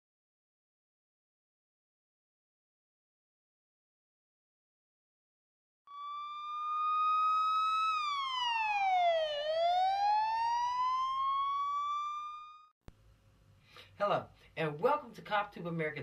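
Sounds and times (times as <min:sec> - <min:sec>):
police siren wailing: 0:05.9 - 0:12.7.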